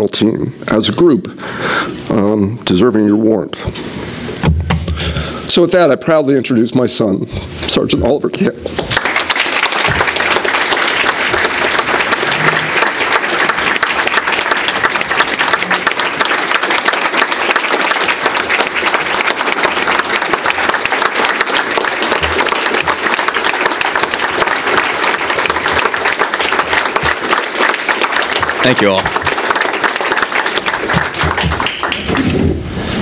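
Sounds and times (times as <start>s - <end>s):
audience clapping: 8.6s - 32.5s.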